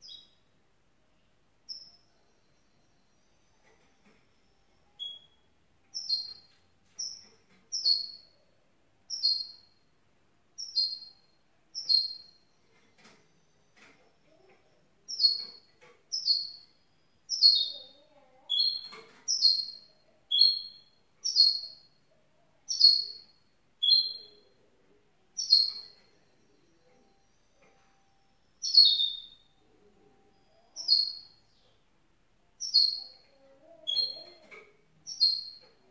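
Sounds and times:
bird giving high chirps: 0:15.1 - 0:21.9, 0:22.7 - 0:24.6, 0:25.4 - 0:26.1, 0:28.6 - 0:29.5, 0:30.5 - 0:31.4, 0:32.6 - 0:35.8.

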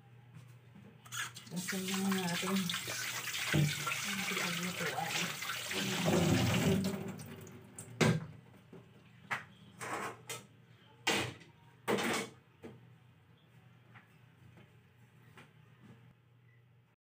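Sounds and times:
water running from tap: 0:01.1 - 0:07.6.

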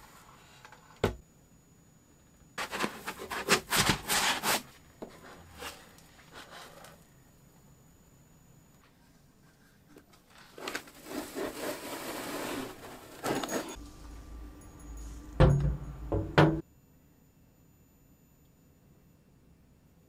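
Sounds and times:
foam scraping and rustling: 0:02.6 - 0:07.0, 0:10.4 - 0:13.8
low rumble: 0:13.8 - 0:16.6
heavy thumps: 0:15.2 - 0:16.6.

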